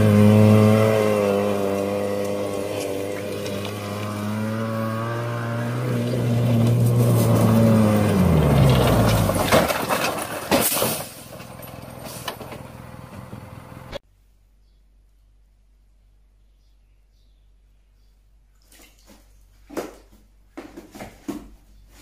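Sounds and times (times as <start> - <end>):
utv engine running: 0.0 - 10.5, 11.3 - 14.0
vehicle crashing on gravel: 0.0 - 14.0.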